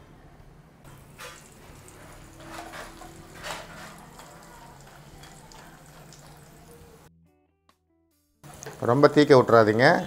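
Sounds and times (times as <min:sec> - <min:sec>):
berries sizzling in hot oil: 0:00.9 - 0:07.1, 0:08.4 - 0:09.3
metal spatula scraping: 0:00.9 - 0:07.1.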